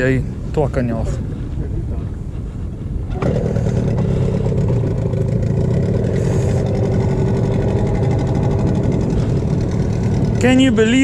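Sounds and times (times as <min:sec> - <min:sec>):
outboard motor running: 0:02.9 - 0:11.0.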